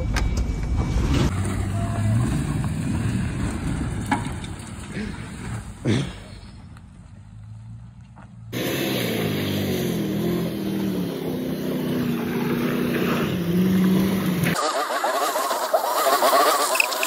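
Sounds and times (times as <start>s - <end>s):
van engine revving: 8.5s - 17.0s.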